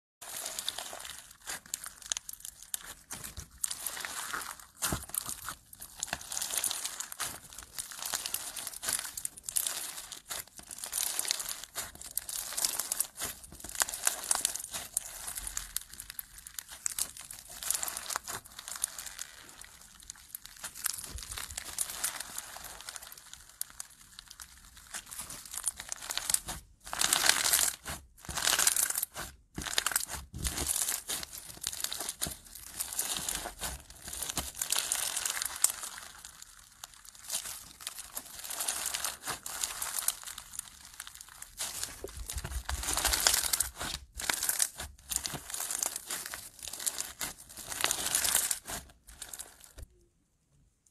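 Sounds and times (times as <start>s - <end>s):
slime beads crackling: 0.2s - 49.9s.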